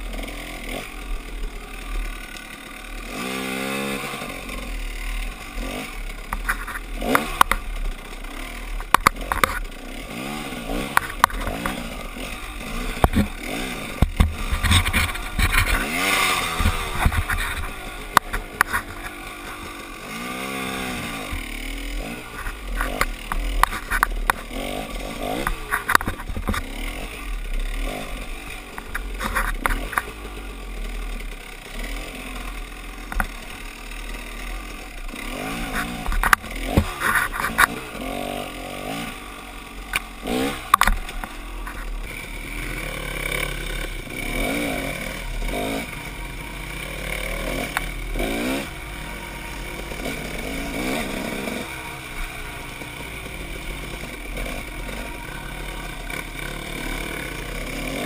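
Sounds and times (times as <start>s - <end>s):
branches hitting bike: 0.0s - 58.0s
dirt bike engine revving: 0.0s - 58.0s.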